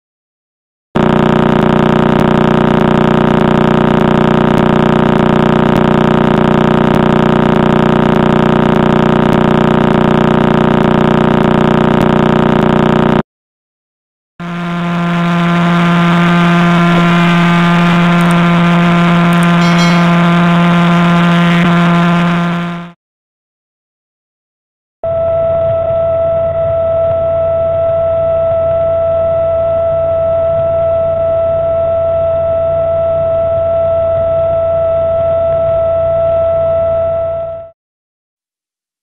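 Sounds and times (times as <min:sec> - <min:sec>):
rapid pulsing buzz: 0:14.4 - 0:22.9
steady pulsar tone: 0:14.4 - 0:22.9.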